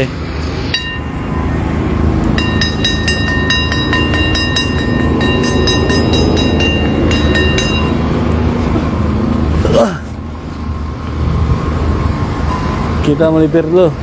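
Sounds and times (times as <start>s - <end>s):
metal singing bowl struck: 0.7s - 1.2s, 2.4s - 8.1s.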